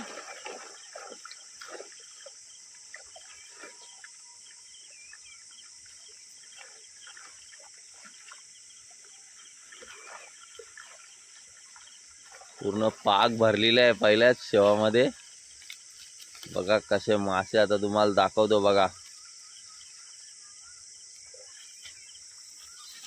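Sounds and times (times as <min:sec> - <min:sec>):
fish splashing in a net: 0:00.0 - 0:03.9, 0:09.6 - 0:12.7
birds chirping: 0:00.0 - 0:23.0
insect chorus: 0:00.0 - 0:23.0.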